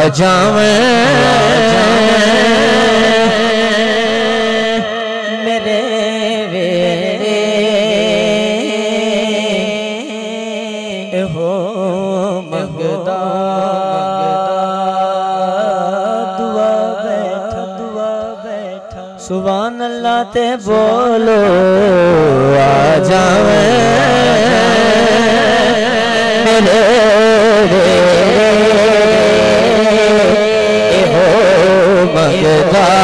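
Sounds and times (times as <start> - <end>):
low vocal drone: 0.0 - 18.4, 20.2 - 33.0
man singing unaccompanied: 0.0 - 33.0.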